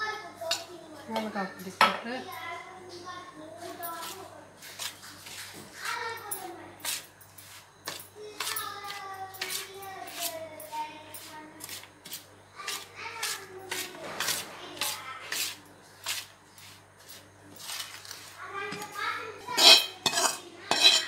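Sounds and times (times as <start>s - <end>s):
steel spoon scraping a steel plate: 19.4s - 21.0s.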